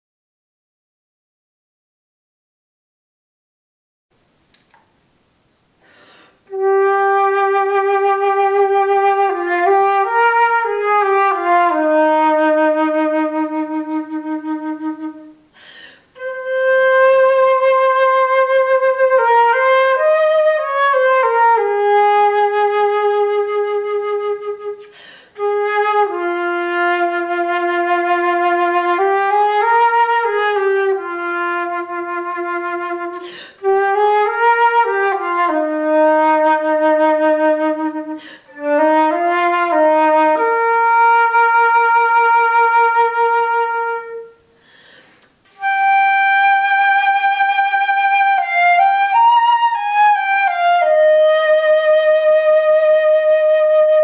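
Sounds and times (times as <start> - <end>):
flautist breathing: 5.8 - 6.5, 15.4 - 16.2, 24.8 - 25.4, 33.1 - 33.7, 38.0 - 38.7, 44.4 - 45.6
solo flute melody: 6.4 - 15.5, 16.1 - 44.6, 45.4 - 54.0.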